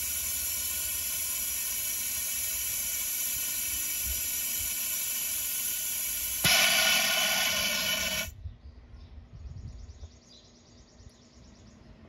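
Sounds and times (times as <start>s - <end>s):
compressed air hissing: 0.0s - 8.3s.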